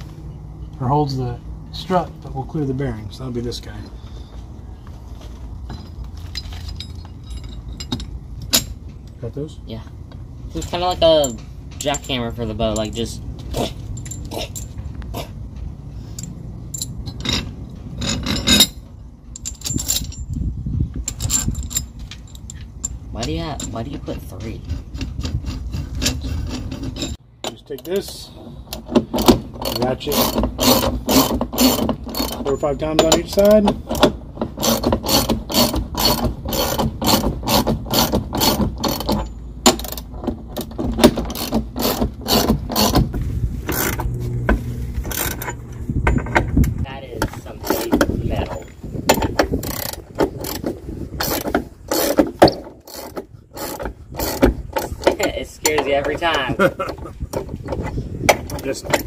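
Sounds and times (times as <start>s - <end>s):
metal parts clinking and scraping: 5.2s - 9.2s, 10.4s - 59.0s
ratchet wrench clicking: 28.7s - 40.1s, 49.1s - 52.2s, 52.8s - 55.1s.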